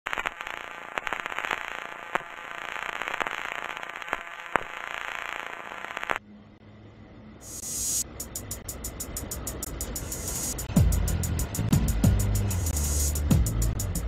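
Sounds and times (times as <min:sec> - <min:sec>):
static hiss with crackles: 0:00.1 - 0:06.2, 0:07.5 - 0:08.0.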